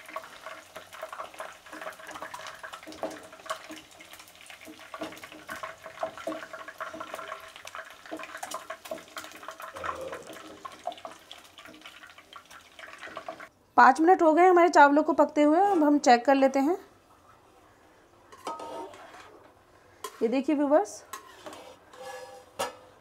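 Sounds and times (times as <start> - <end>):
oil sizzling and popping: 0.0 - 13.6
wooden spatula scraping and knocking: 18.3 - 23.0.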